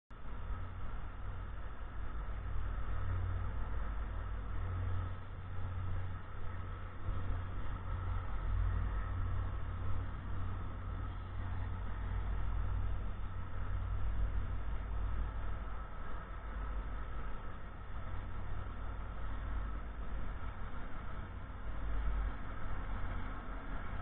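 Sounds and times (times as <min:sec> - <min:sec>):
distant traffic rumble: 0:00.1 - 0:24.0.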